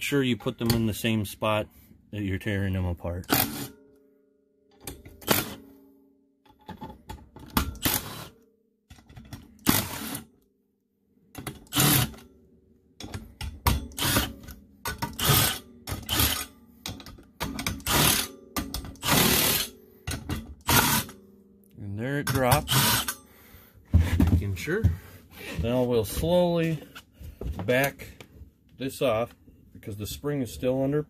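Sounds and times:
impact driver hammering: 13.0s - 21.2s.

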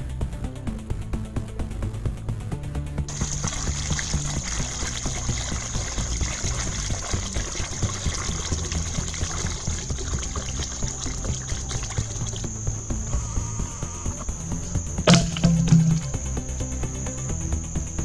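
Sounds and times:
water pouring into bucket: 3.1s - 13.1s, 15.1s - 16.3s
steady high-pitched whine: 11.0s - 18.0s.

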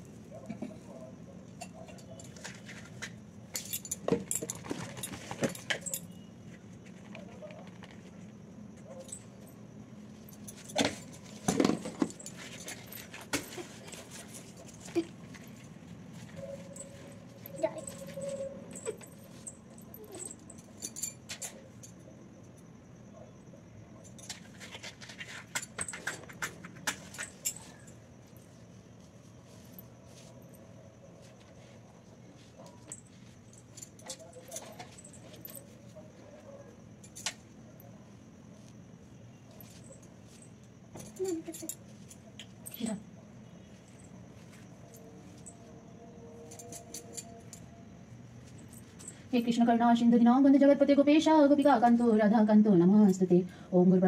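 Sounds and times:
metallic clinks of bangles and utensils: 1.6s - 6.3s, 16.4s - 22.0s, 32.8s - 35.8s, 39.5s - 43.0s, 46.4s - 47.8s.

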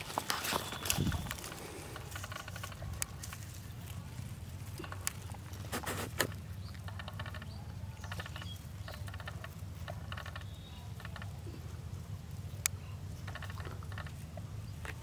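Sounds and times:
rustle and click: 0.0s - 15.0s
steady low hum: 0.0s - 15.0s
insect chirps: 6.5s - 11.4s, 13.1s - 14.8s.

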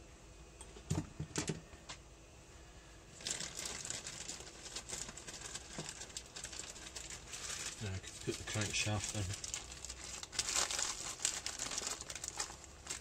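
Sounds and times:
crinkling rustle: 3.1s - 13.0s.

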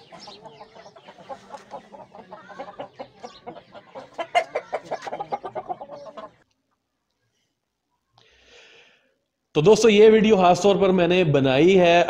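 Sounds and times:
chickens clucking: 0.0s - 7.2s.

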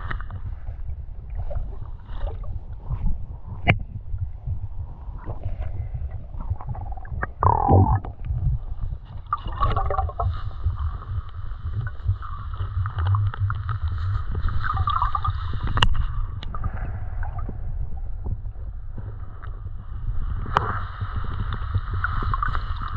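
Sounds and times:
constant low rumble: 0.0s - 22.9s
muffled water sloshing: 0.0s - 22.9s
small clicks and bubbling: 5.2s - 19.7s, 20.4s - 22.9s.

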